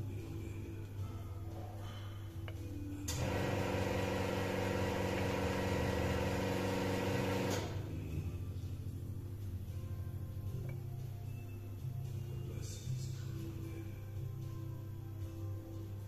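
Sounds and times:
coffee machine motor buzzing: 0:03.1 - 0:07.9.

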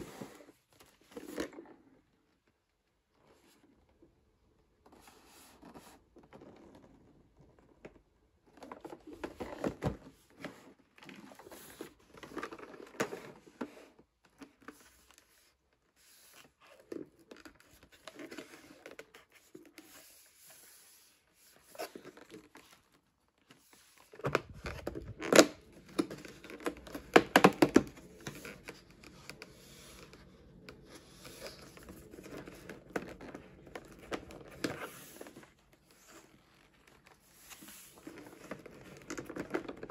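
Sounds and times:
cardboard tearing and rustling: 0:24.0 - 0:30.1.

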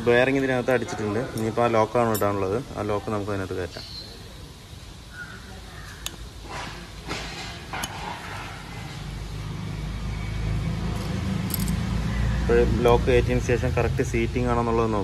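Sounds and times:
engine rumble: 0:04.8 - 0:15.0.

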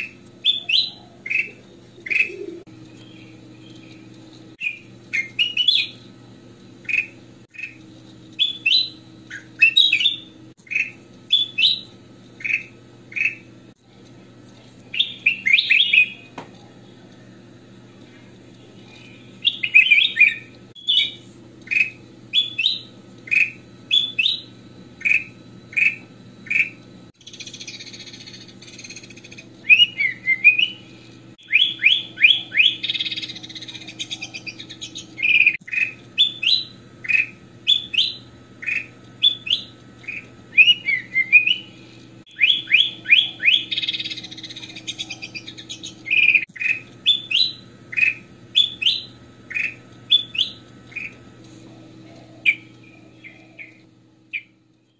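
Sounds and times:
bird scratchy chatter: 0:00.0 - 0:02.6, 0:31.7 - 0:36.2, 0:42.7 - 0:47.3
bulbul whistled song: 0:00.0 - 0:06.2, 0:06.8 - 0:13.5, 0:14.9 - 0:16.4, 0:18.6 - 0:51.2, 0:52.4 - 0:54.9.

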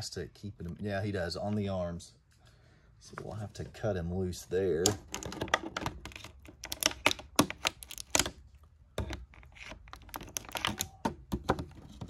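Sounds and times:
plastic packaging crinkling: 0:05.0 - 0:08.4, 0:09.1 - 0:11.0.

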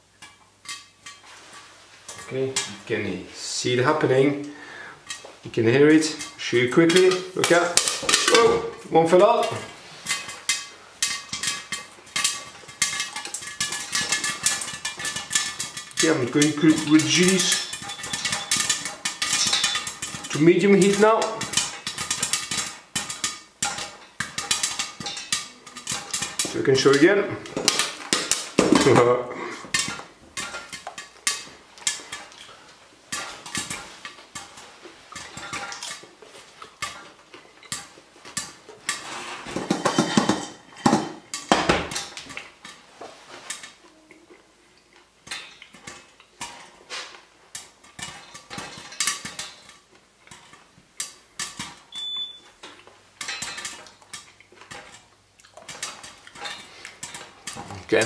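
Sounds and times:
popcorn popping in a pan: 0:02.1 - 0:42.9, 0:43.5 - 0:58.0
short hob beep: 0:52.0 - 0:52.4.

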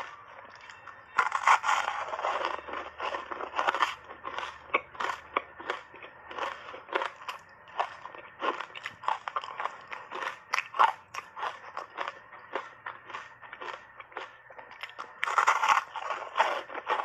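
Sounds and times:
ice crunching being chewed: 0:00.0 - 0:17.0.

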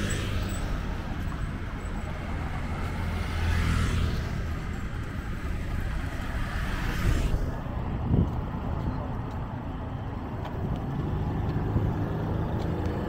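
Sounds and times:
motor scooter passing: 0:00.0 - 0:07.6
car passing: 0:00.0 - 0:09.0
steady low traffic rumble: 0:00.0 - 0:13.0.

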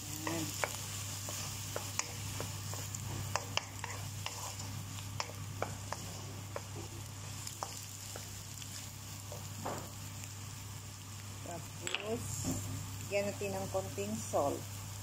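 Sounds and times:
frying sizzle: 0:00.0 - 0:15.0
spatula scraping a wok: 0:00.2 - 0:09.5.

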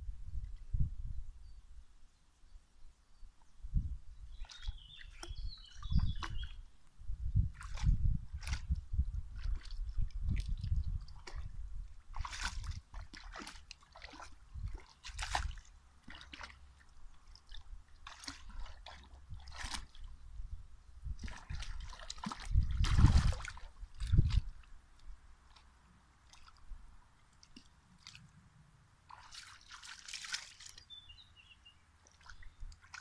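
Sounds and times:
dog splashing in water: 0:12.1 - 0:16.6, 0:18.0 - 0:20.0, 0:29.1 - 0:30.8.

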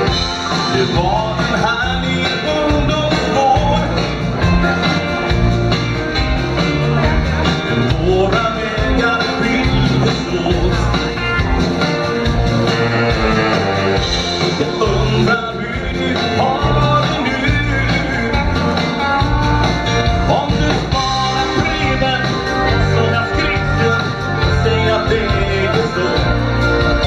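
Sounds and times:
person singing: 0:00.0 - 0:05.2, 0:06.6 - 0:11.2, 0:14.2 - 0:27.0
drums: 0:00.0 - 0:27.0
electric guitar: 0:00.0 - 0:27.0
keyboard: 0:00.0 - 0:27.0
saxophone: 0:12.2 - 0:14.5.

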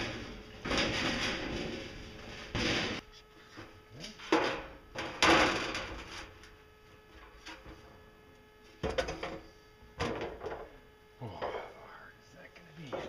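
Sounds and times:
sheet metal clank: 0:00.0 - 0:03.0
sheet metal clattering: 0:00.0 - 0:03.0
faint hum: 0:00.0 - 0:13.0.

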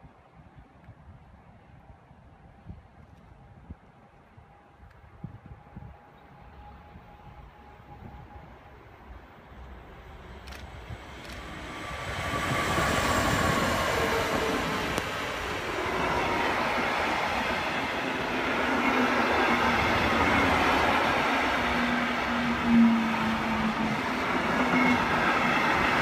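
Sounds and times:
train passing: 0:05.5 - 0:26.0.

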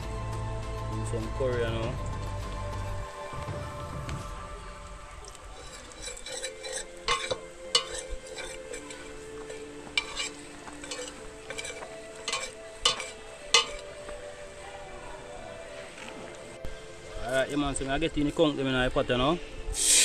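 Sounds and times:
metal spoon stirring in a pot: 0:05.2 - 0:14.6.

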